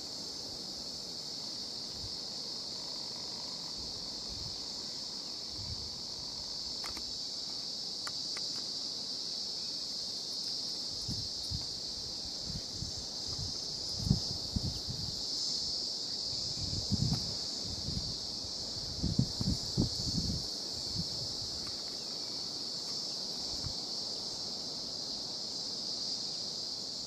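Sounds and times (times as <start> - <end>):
high-pitched insect chorus: 0.0 - 27.0
wind buffeting microphone: 12.4 - 15.2, 16.4 - 21.5.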